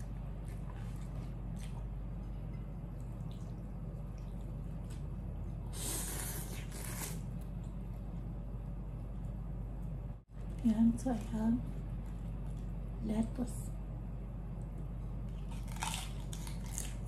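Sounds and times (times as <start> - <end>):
person slurping noodles: 5.7 - 7.2.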